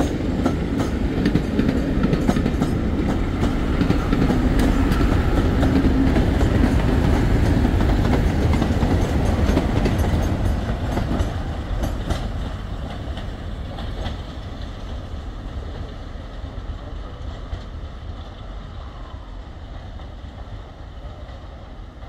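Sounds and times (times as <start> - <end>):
wheels clattering over rail joints: 0.0 - 15.0
diesel locomotive rumble: 0.0 - 22.0.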